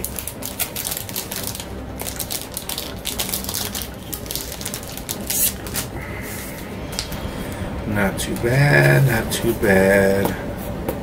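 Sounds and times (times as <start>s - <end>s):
trading cards rustling and sliding: 3.2s - 7.6s.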